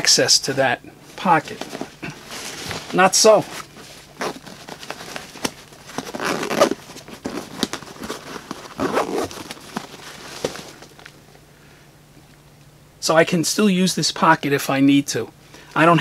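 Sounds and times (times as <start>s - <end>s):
backpack fabric rustling: 1.1s - 11.2s.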